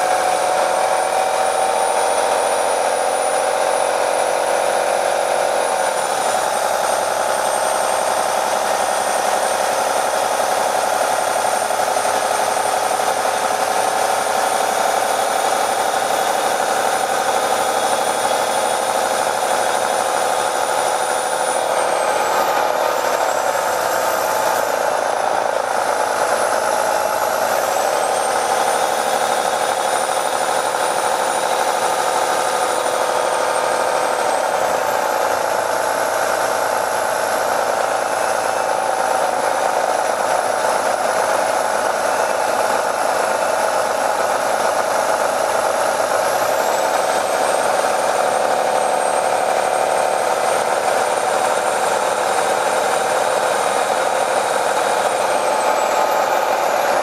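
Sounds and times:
bus engine droning: 0:00.0 - 0:57.0.

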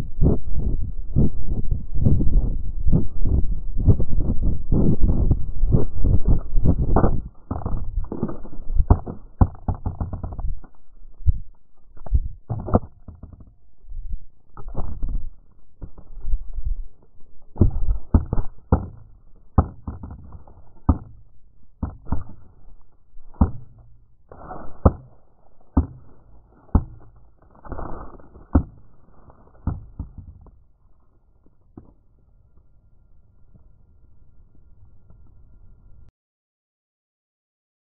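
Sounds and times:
low rumble: 0:00.0 - 0:19.6
camera knocking against ground: 0:03.2 - 0:13.6, 0:14.6 - 0:16.2, 0:17.6 - 0:22.6, 0:23.2 - 0:30.6.

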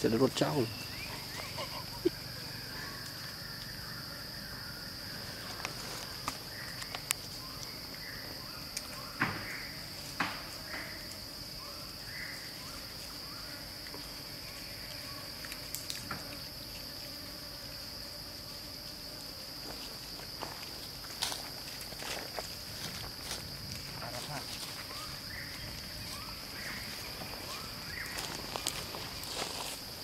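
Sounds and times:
insects droning: 0:00.0 - 0:30.0
footsteps crackling on dry leaves: 0:19.6 - 0:30.0.

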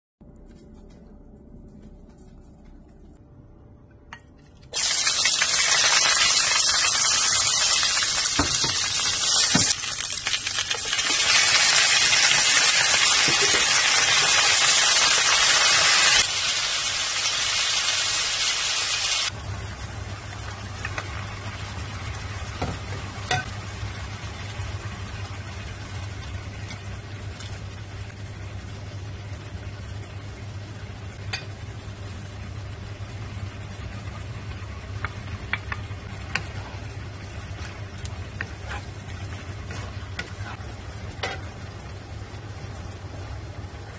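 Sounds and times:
low steady hum: 0:00.2 - 0:04.8, 0:19.3 - 0:43.9
food sizzling in hot oil: 0:04.7 - 0:41.9.

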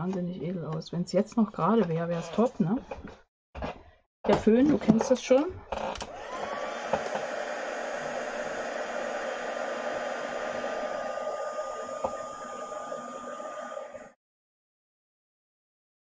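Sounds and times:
heat tool blowing with a whine: 0:06.0 - 0:14.2.

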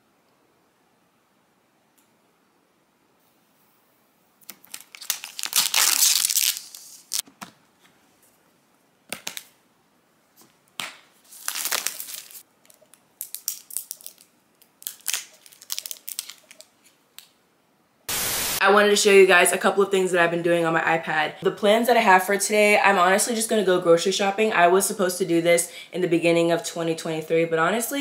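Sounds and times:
plastic film crinkling: 0:04.4 - 0:07.2, 0:11.2 - 0:17.3.

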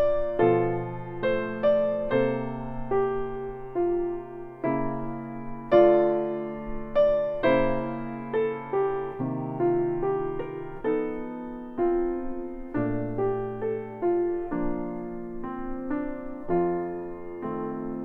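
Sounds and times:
slow gentle piano melody: 0:00.0 - 0:18.0.

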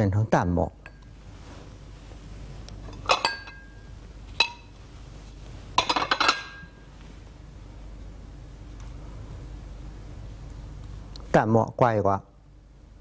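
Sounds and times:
porcelain clinking: 0:02.8 - 0:04.7, 0:05.8 - 0:06.8.

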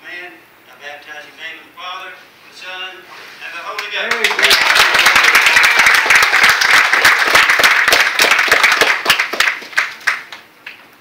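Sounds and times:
congregation clapping: 0:03.7 - 0:10.8.

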